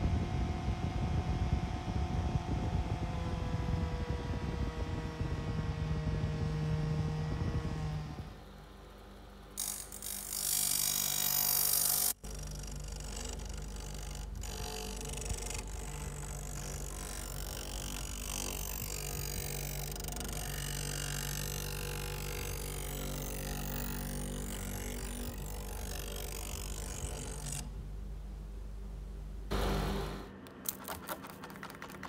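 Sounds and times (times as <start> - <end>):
bench grinder motor hum: 6.2 - 28.0, 29.5 - 30.4
blade grinding on wheel: 9.6 - 27.7.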